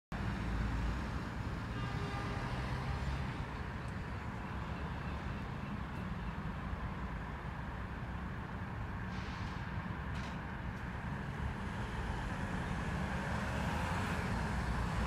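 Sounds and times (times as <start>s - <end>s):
road traffic rumble: 0.1s - 15.0s.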